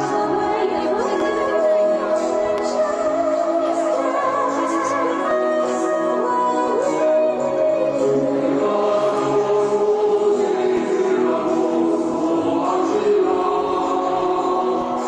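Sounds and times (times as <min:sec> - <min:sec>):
choir singing held notes: 0:07.7 - 0:15.0.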